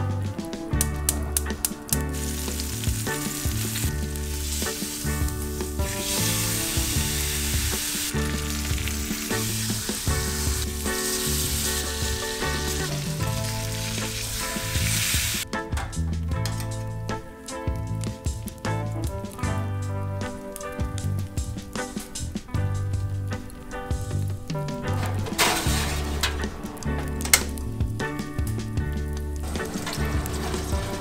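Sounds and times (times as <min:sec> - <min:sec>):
background music with bass line: 0:00.0 - 0:31.0
meat sizzling in a grill pan: 0:02.1 - 0:15.4.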